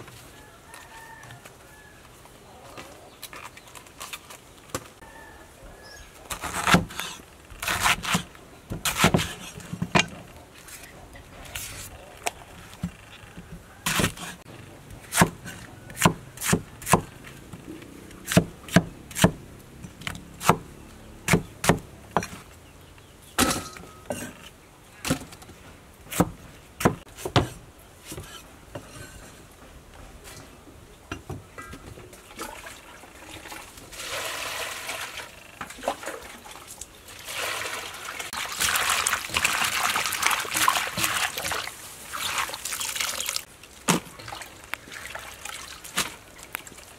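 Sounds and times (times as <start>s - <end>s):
knife chopping on wooden board: 15.1s - 17.1s, 18.2s - 19.4s, 21.3s - 22.4s
hands sloshing in pot of water: 32.2s - 46.9s.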